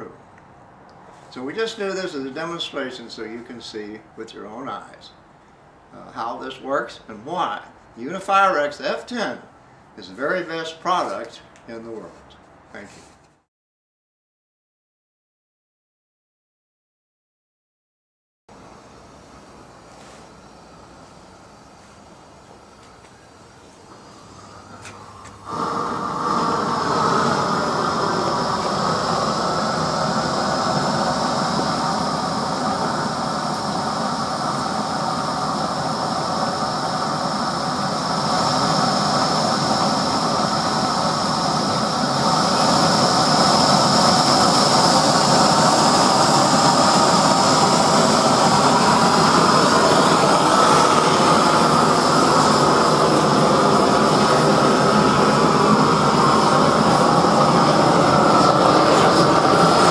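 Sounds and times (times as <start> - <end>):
gas torch rushing: 18.6 - 59.9.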